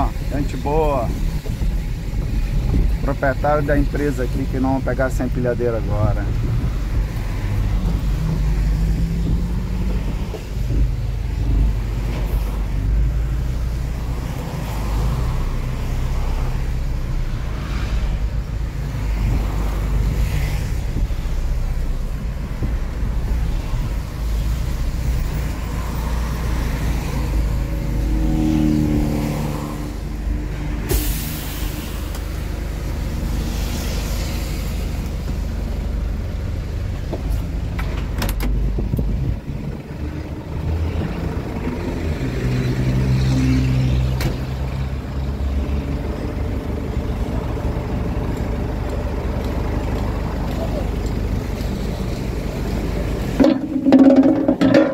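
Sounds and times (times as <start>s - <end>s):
truck engine rumbling: 0.0s - 54.9s
air brakes hissing: 30.8s - 32.2s.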